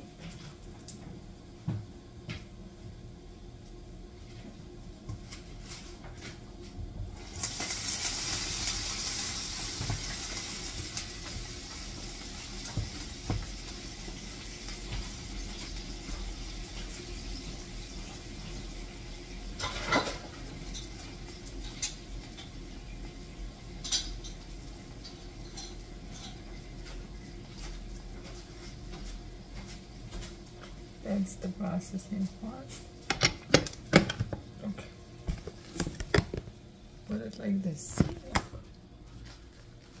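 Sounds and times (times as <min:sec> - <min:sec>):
cookware and utensils clattering: 0:19.6 - 0:21.0, 0:23.8 - 0:26.5.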